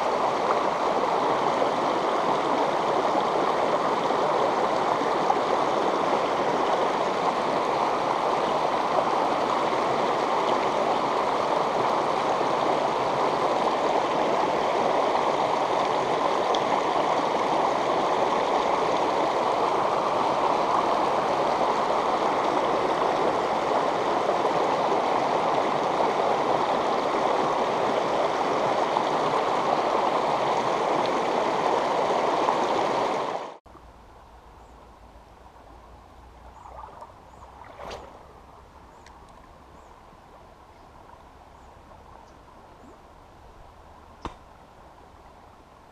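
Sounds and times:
river water rushing over rocks: 0.0s - 33.6s.

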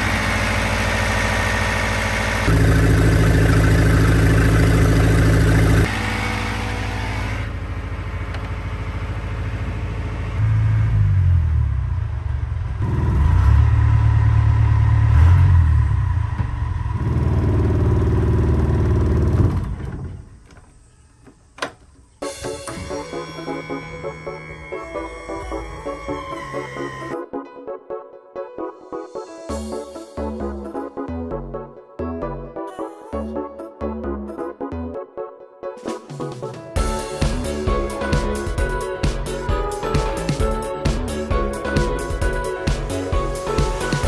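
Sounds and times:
marine diesel engine running: 0.0s - 12.9s, 13.6s - 20.0s.

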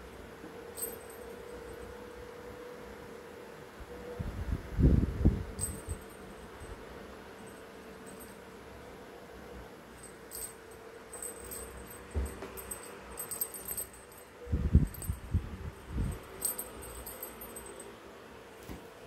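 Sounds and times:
small jingle bell tinkling: 0.7s - 1.9s, 5.6s - 8.6s, 9.9s - 17.9s.

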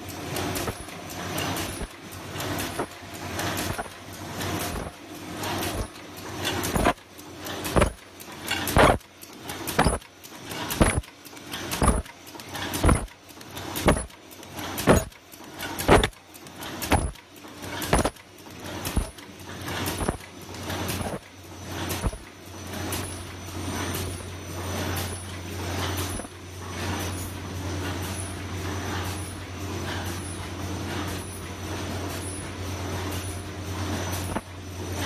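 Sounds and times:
machine clacking: 0.0s - 35.0s
mechanical hum and hiss: 0.0s - 35.0s.

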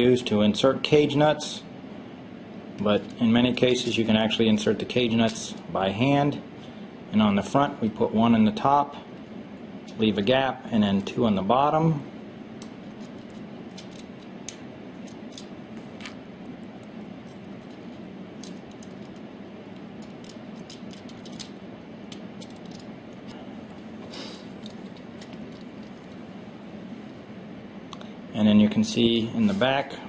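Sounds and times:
steady low hum: 0.0s - 30.0s
metal clicks and scrapes: 20.0s - 22.9s.

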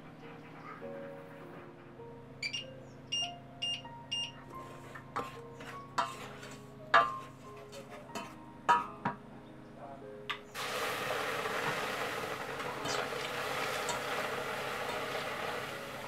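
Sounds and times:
wooden spoon scraping metal pan: 4.6s - 8.4s.

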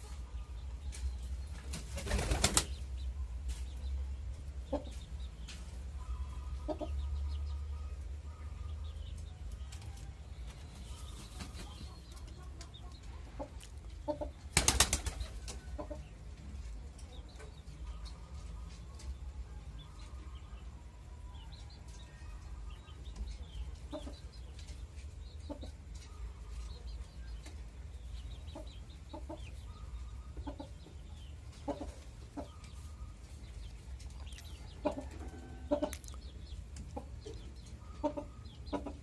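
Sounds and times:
pigeon wings flapping: 1.6s - 2.8s, 14.5s - 15.3s.

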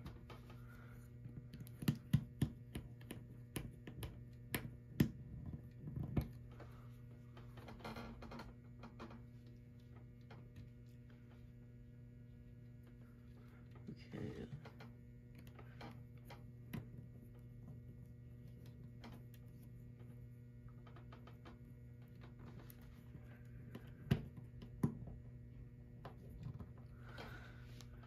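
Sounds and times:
clicks and taps of wires: 0.0s - 6.7s
steady low hum: 0.0s - 28.0s.

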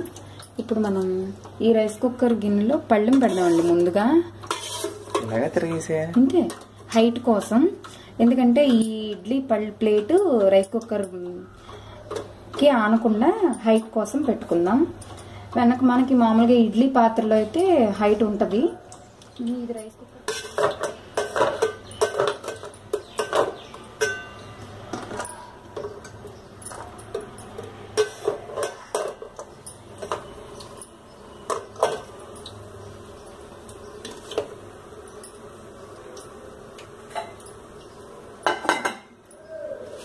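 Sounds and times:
metal plates clinking: 20.3s - 32.5s.

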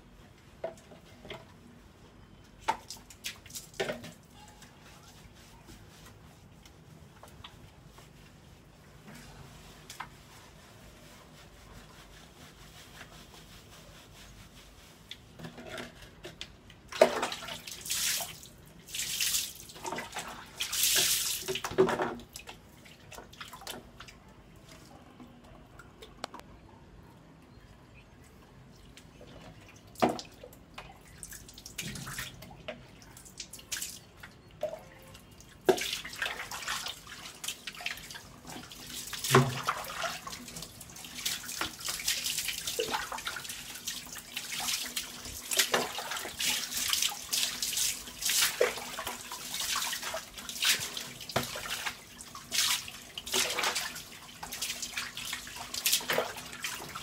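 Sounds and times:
water splashing on tiled floor: 2.6s - 4.2s, 16.9s - 24.2s, 29.7s - 34.8s, 35.4s - 57.0s.

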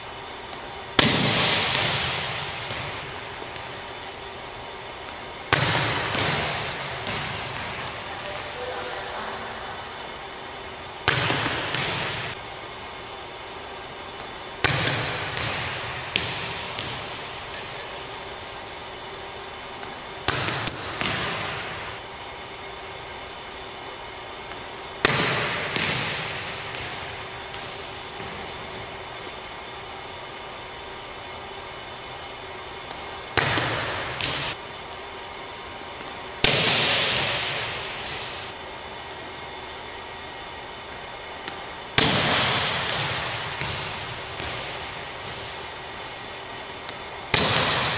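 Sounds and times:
volleyball smacking on hardwood floor: 1.0s - 4.2s, 5.1s - 8.0s, 14.2s - 17.3s, 19.8s - 21.9s, 25.0s - 28.5s, 32.9s - 34.6s, 36.4s - 38.5s, 41.5s - 46.2s, 46.8s - 47.9s.

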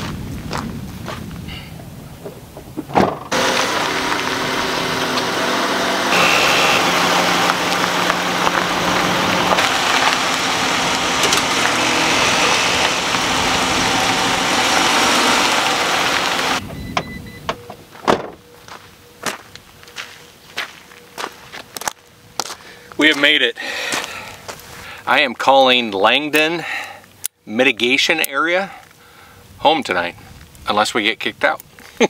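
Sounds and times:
footsteps on gravel: 0.0s - 1.4s, 6.2s - 16.5s, 18.6s - 24.8s
van engine running: 3.3s - 18.2s.

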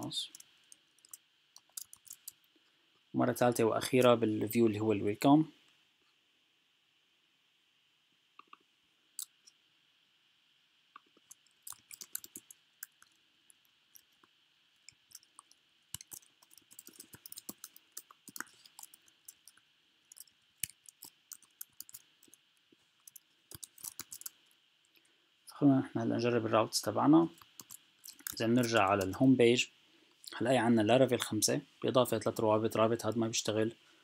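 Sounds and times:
keyboard typing: 0.0s - 2.4s, 11.0s - 13.2s, 14.9s - 22.4s, 23.0s - 24.4s, 27.4s - 29.3s
faint steady hiss: 0.0s - 34.0s.

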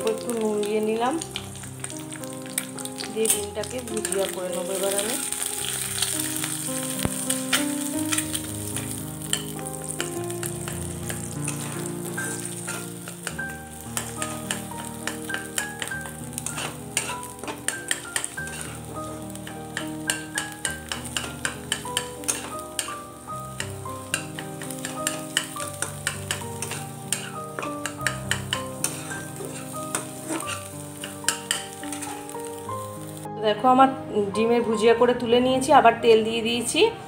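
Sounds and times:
egg frying in oil: 0.0s - 33.3s
background music: 0.0s - 37.0s
spatula scraping a wok: 3.2s - 32.4s.

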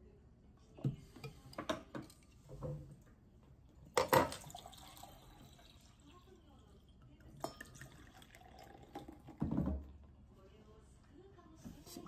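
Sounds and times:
beer trickling and fizzing: 4.2s - 6.7s, 7.3s - 9.4s.

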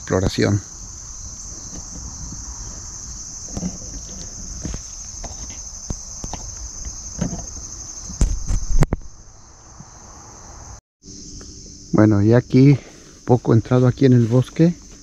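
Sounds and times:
high-pitched insect chorus: 0.0s - 15.0s
footsteps on forest trail: 0.8s - 9.1s, 12.8s - 15.0s.

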